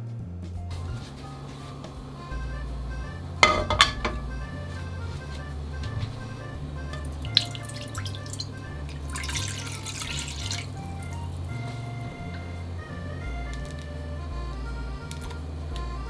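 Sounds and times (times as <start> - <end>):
background music with bass: 0.0 - 16.0
water dripping: 6.9 - 11.9
water pouring into pan: 7.2 - 11.2.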